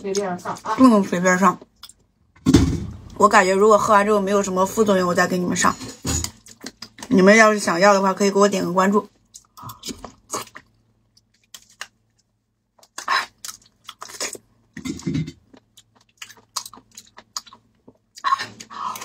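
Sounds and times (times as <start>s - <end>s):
slurping and chewing: 9.3s - 11.9s, 12.8s - 19.0s.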